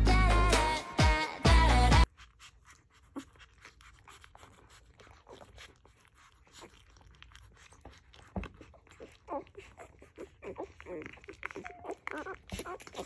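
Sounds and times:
puppies suckling wet clicks: 2.0 - 13.0
puppy squeak: 8.4 - 13.0.

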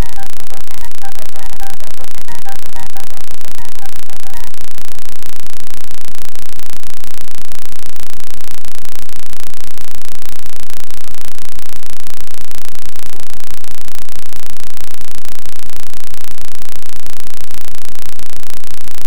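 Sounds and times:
loud static noise: 0.0 - 19.0.

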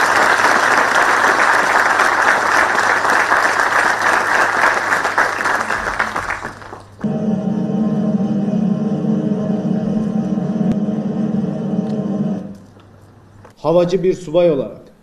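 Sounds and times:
audience applauding: 0.0 - 7.1
music: 7.0 - 12.6.

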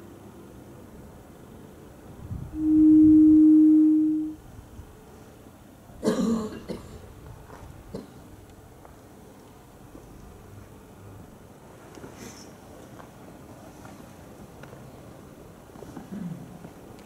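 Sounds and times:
steady pure tone: 0.0 - 5.1
short cough: 6.0 - 7.0.

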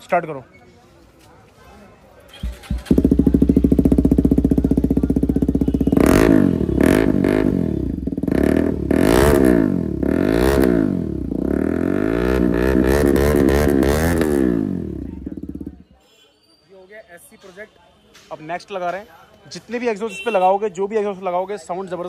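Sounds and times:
motorcycle engine idling: 2.3 - 15.8
engine revving in throttle blips: 2.4 - 15.7.

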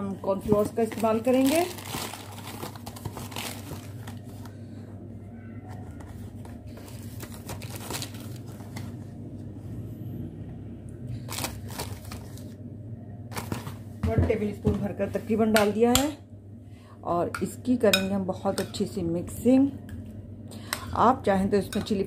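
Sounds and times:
steady low hum: 0.0 - 22.0
plastic packet rustling and tapping: 0.4 - 4.6, 6.4 - 9.0, 11.3 - 12.5, 13.3 - 14.3.

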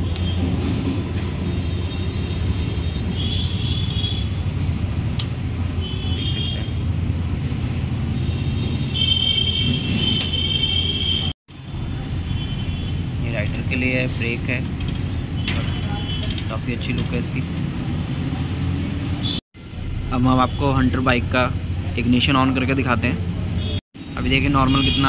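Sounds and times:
low rumble of vehicles: 0.0 - 25.0.

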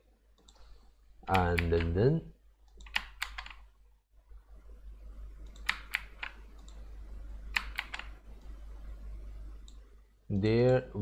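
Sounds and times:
mouse and keyboard clicks: 5.4 - 6.8.

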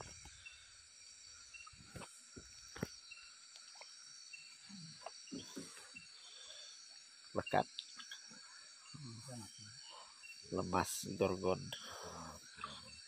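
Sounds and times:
night insects chirring: 0.0 - 13.0.

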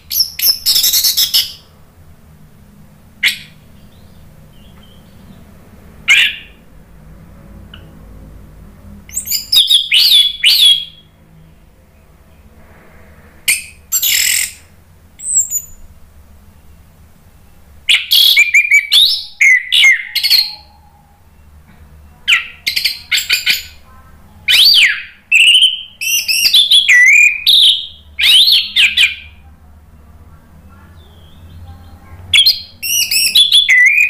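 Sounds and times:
thrush singing whistled phrases: 0.0 - 1.7, 9.1 - 11.2, 13.5 - 15.8, 17.9 - 21.4, 22.3 - 23.8, 24.4 - 29.4, 32.3 - 34.0.

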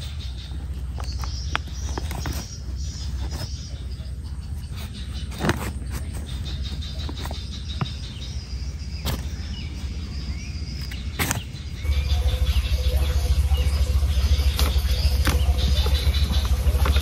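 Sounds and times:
low outdoor rumble: 0.0 - 17.0
fingers pressing soil: 0.9 - 8.3, 10.8 - 11.6.

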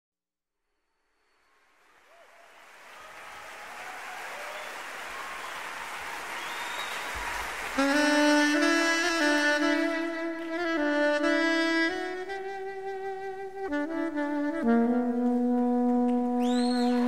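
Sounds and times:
applause: 1.4 - 9.6, 10.3 - 10.7, 15.2 - 17.0
crowd noise: 1.9 - 8.1
saxophone playing jazz: 6.8 - 17.0.

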